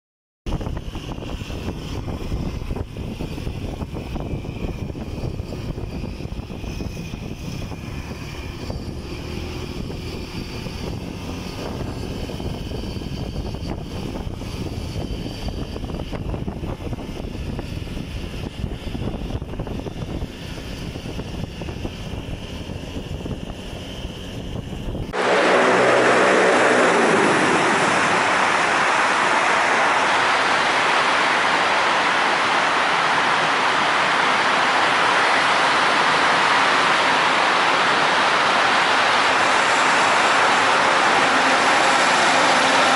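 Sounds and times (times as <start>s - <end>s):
steady rushing noise: 0.5s - 42.9s
wind buffeting microphone: 0.5s - 42.9s
traffic: 0.8s - 16.6s, 19.8s - 42.9s
motorcycle engine: 23.8s - 30.4s, 39.0s - 42.9s.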